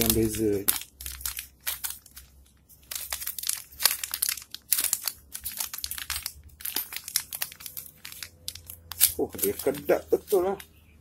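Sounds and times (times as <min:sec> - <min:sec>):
plastic packet crinkling: 0:00.0 - 0:10.8.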